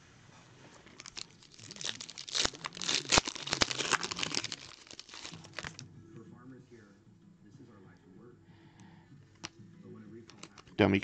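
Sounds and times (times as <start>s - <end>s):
plastic wrapper tearing and crinkling: 0.8s - 5.8s.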